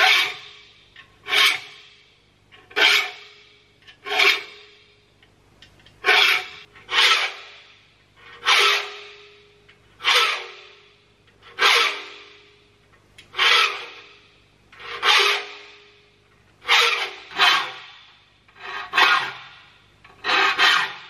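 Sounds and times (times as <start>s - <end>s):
file rasping on saw teeth: 0.0s - 0.5s, 1.2s - 1.8s, 2.7s - 3.2s, 4.0s - 4.6s, 6.0s - 7.6s, 8.3s - 9.0s, 10.0s - 10.6s, 11.5s - 12.2s, 13.3s - 14.1s, 14.8s - 15.6s, 16.6s - 17.8s, 18.5s - 19.5s, 20.1s - 21.0s.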